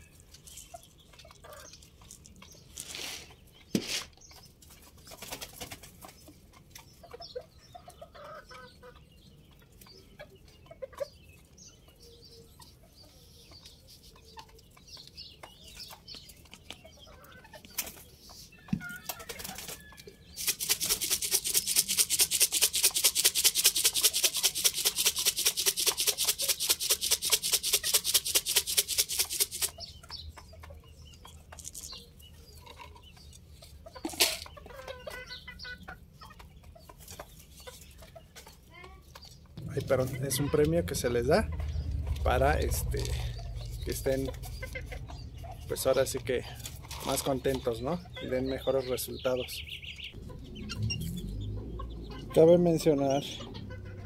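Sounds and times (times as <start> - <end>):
chickens clucking: 0.0 - 54.0.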